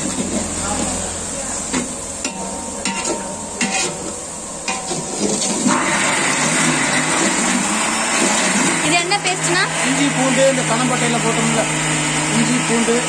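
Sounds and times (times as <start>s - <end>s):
onions sizzling in oil: 0.0s - 13.0s
wooden spatula scraping pot: 1.7s - 8.8s.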